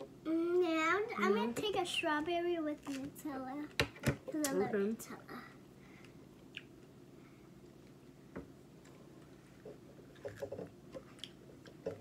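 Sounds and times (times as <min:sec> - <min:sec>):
soft squishy eating sounds: 0:08.8 - 0:12.0.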